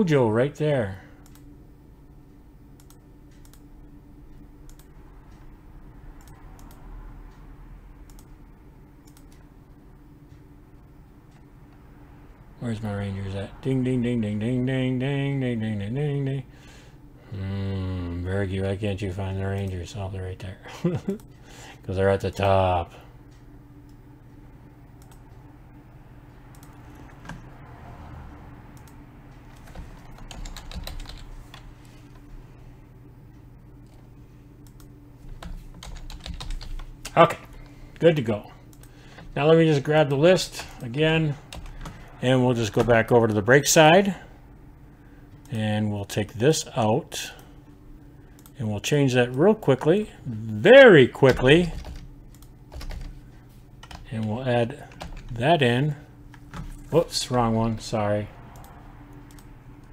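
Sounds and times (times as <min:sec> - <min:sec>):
steady low hum: 0:00.0 - 0:59.9
computer mouse clicks: 0:01.2 - 0:01.5, 0:02.8 - 0:03.7, 0:04.6 - 0:05.4, 0:06.2 - 0:08.4, 0:09.0 - 0:09.5, 0:25.0 - 0:25.4, 0:26.5 - 0:27.5, 0:28.7 - 0:32.3, 0:33.8 - 0:37.8, 0:48.3 - 0:48.6, 0:51.3 - 0:53.1, 0:58.5 - 0:59.9.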